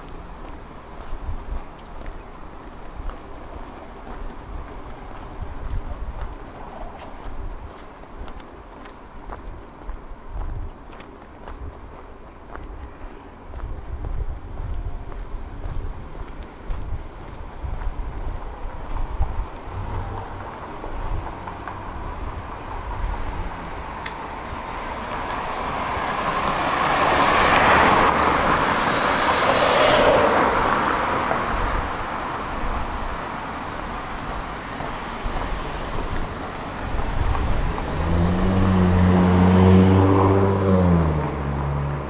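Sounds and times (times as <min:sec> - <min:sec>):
tram running: 0:00.0 - 0:39.0
street traffic: 0:00.0 - 0:42.0
vehicle passing: 0:14.6 - 0:42.0.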